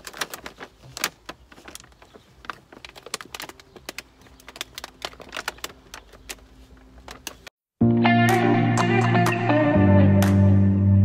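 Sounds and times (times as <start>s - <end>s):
plastic packaging crackling: 0.0s - 7.5s.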